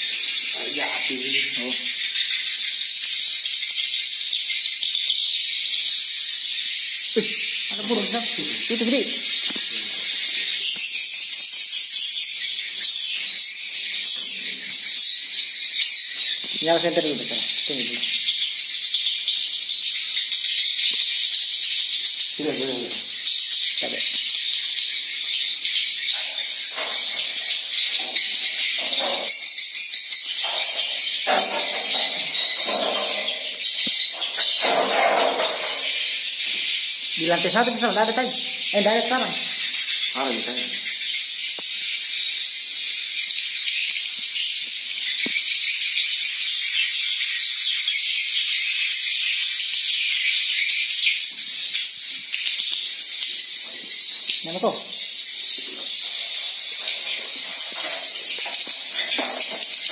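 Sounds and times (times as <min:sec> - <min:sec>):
swiftlets twittering and chirping: 0:00.0 - 0:43.7, 0:51.2 - 0:59.9
swiftlets chirping: 0:25.5 - 0:37.6, 0:53.5 - 0:59.9.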